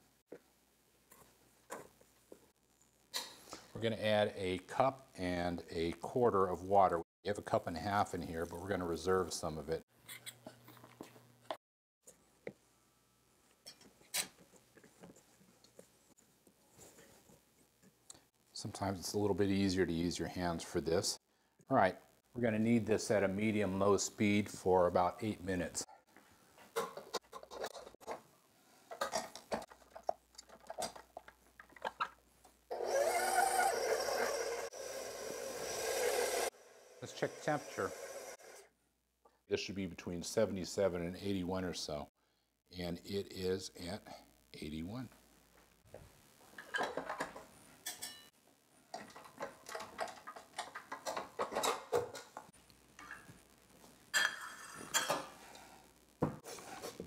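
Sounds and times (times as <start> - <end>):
stand mixer motor running: 32.8 - 38.6.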